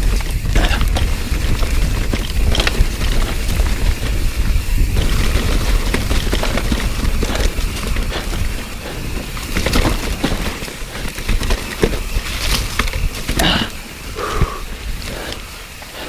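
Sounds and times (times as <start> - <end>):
bike knocking and rattling: 0.0 - 16.0
tyres rolling through leaves: 0.0 - 16.0
wind rumble on microphone: 0.0 - 16.0.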